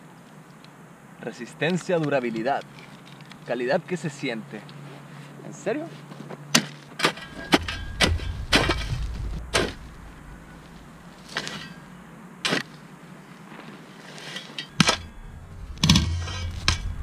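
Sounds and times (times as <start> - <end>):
shovel chopping and scraping gravel: 6.2 - 17.0
soil and stones thrown off: 6.5 - 17.0.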